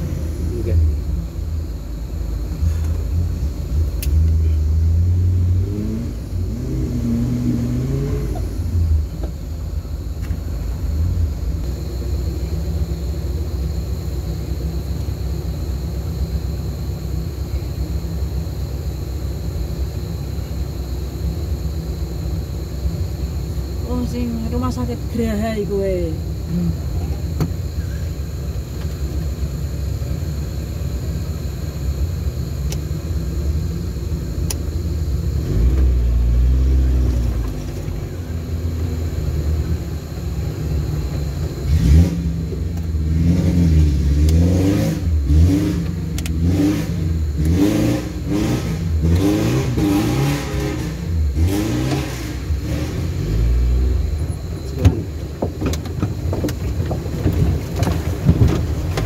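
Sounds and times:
off-road vehicle engine revving: 0.0s - 1.4s, 2.6s - 12.7s, 34.9s - 59.0s.

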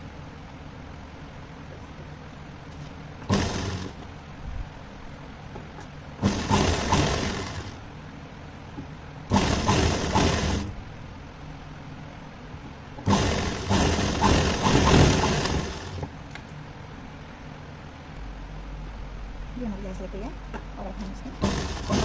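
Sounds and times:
sewing machine stitching: 3.2s - 4.0s, 6.2s - 7.8s, 9.3s - 10.8s, 13.0s - 16.1s, 21.3s - 22.0s.

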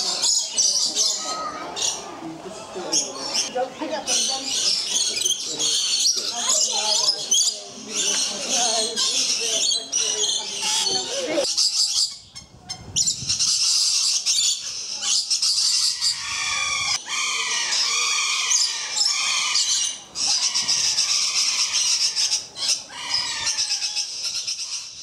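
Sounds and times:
lorikeets chattering and screeching: 0.0s - 25.0s
repeated falling bird calls: 13.1s - 25.0s.

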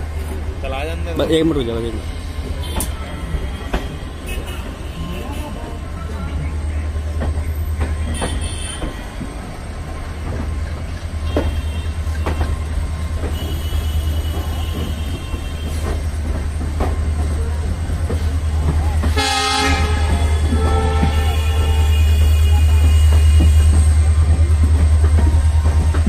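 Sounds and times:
train rumble: 0.0s - 26.0s
wheels clacking over rail joints: 0.0s - 26.0s.

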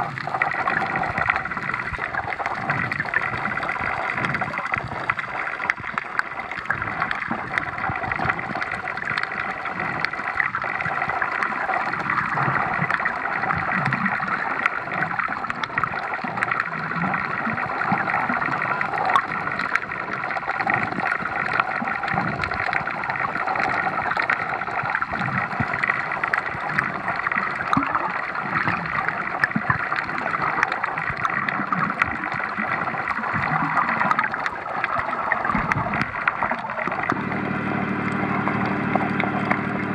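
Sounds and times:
muffled underwater water rush: 0.0s - 39.9s.

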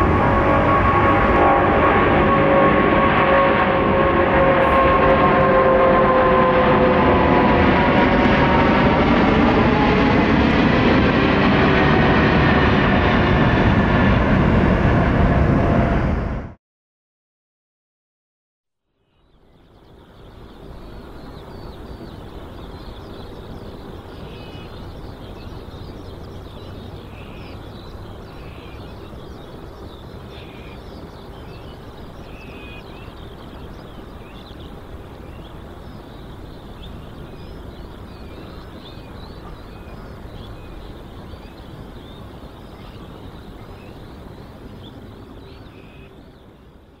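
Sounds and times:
constant hum: 0.0s - 15.9s, 19.4s - 47.0s
low rumble: 0.0s - 16.6s.

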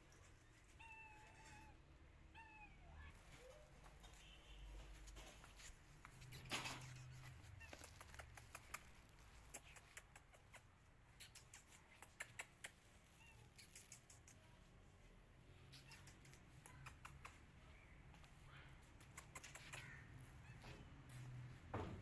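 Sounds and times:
brief rustle: 3.2s - 12.8s.

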